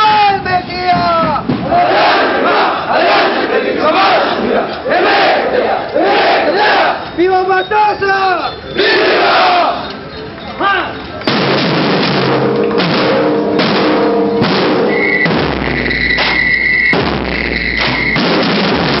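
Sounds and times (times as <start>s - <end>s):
marching drum corps: 0.0s - 7.1s, 11.2s - 19.0s.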